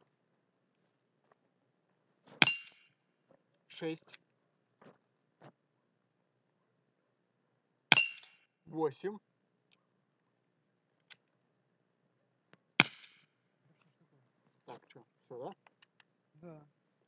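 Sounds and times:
metallic ring: 0:02.4 - 0:02.9, 0:07.9 - 0:08.5.

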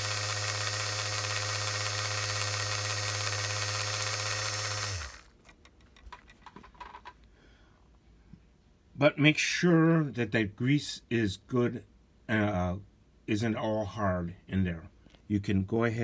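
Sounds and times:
electric motor buzzing hum: 0:00.0 - 0:05.3.

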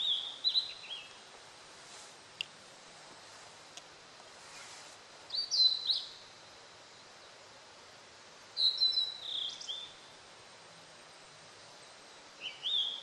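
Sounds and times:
bird whistled song: 0:00.0 - 0:01.2, 0:05.3 - 0:06.2, 0:08.6 - 0:10.0, 0:12.4 - 0:13.0.

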